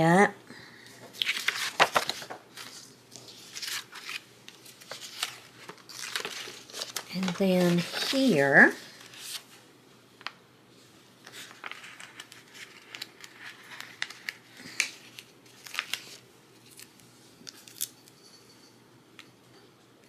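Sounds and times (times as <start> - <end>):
paper sticker sheets rustling: 1.1 - 9.6, 11.2 - 17.9.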